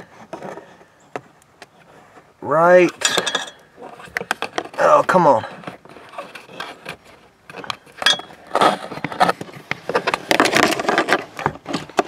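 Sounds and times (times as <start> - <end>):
tripod knocking and scraping: 2.9 - 12.0.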